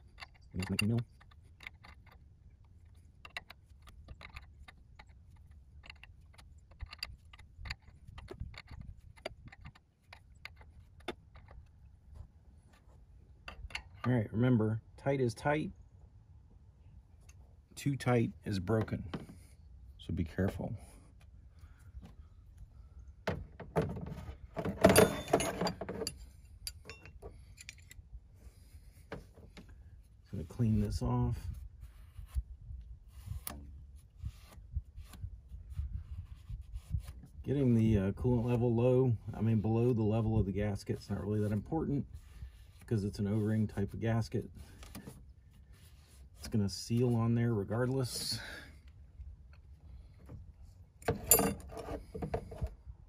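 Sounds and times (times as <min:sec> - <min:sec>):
metal tools clinking and rattling: 0:24.6 - 0:28.0, 0:51.1 - 0:52.0.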